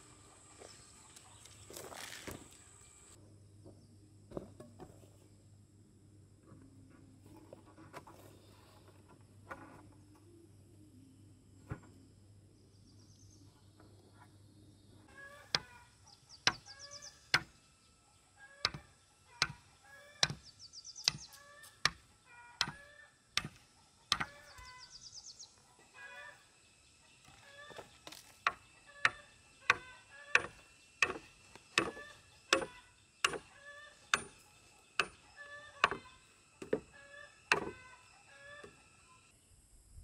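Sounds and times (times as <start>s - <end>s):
faint low hum: 0.0s - 21.3s
hand tool striking: 28.4s - 36.9s.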